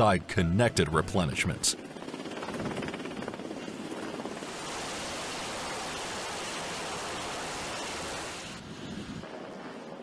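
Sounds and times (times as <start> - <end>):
helicopter rotor downwash hiss: 2.1 - 10.0.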